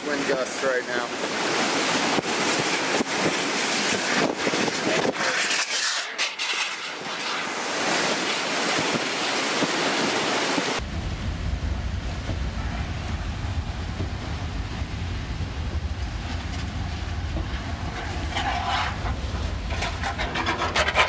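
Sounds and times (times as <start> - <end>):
gusting wind and driving rain: 0.0 - 21.0
wind buffeting microphone: 1.2 - 5.7, 7.2 - 21.0
dull low rumble: 10.8 - 21.0.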